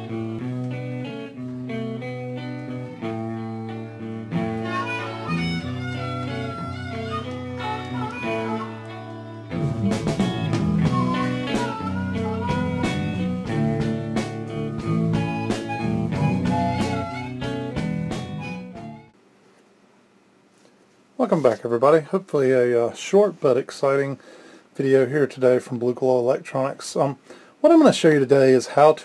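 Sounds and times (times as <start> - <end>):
blues guitar music: 0.0 - 19.2.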